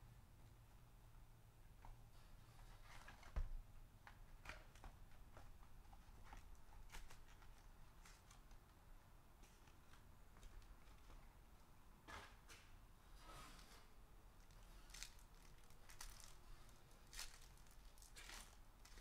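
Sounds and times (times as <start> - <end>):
cardboard and foil rustling: 14.4 - 19.0.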